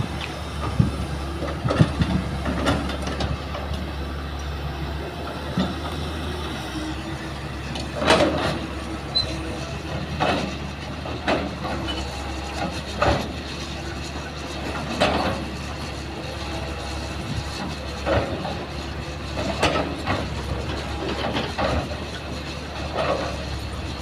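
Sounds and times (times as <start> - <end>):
excavator diesel engine running: 0.0 - 24.0
metal clanks from excavator bucket: 11.2 - 12.2.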